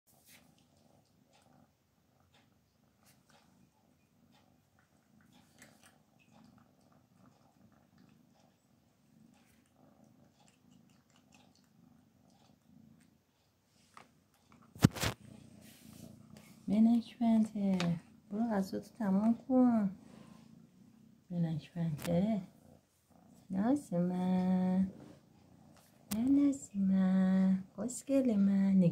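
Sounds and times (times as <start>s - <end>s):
cat crunching kibble: 4.8s - 8.5s, 9.2s - 13.1s.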